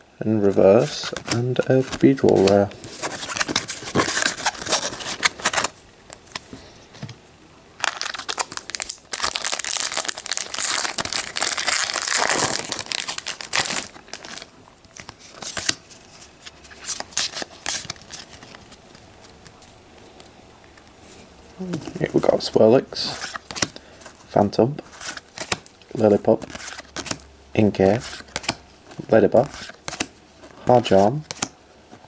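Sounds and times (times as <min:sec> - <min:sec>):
foil pack crinkling and tearing: 0:07.8 - 0:15.8
cards clicking: 0:28.2 - 0:28.6.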